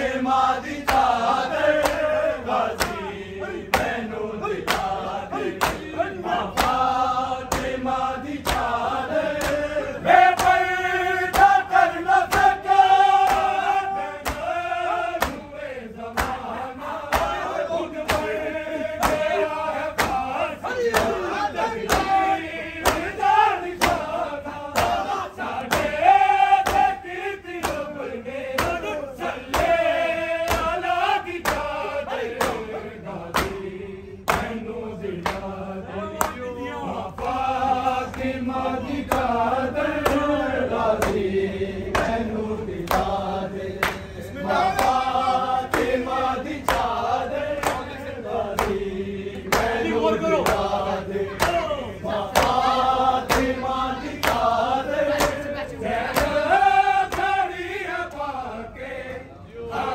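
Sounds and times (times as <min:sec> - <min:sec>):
men chanting in unison: 0:00.0 - 0:59.9
hands beating on chests: 0:24.8 - 0:26.0, 0:28.6 - 0:28.9.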